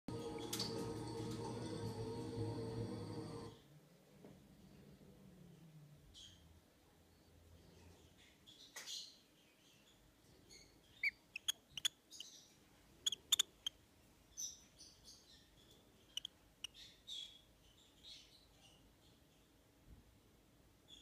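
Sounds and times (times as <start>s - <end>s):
bird chick squeaky chirps: 10.5s - 13.8s, 14.4s - 18.8s.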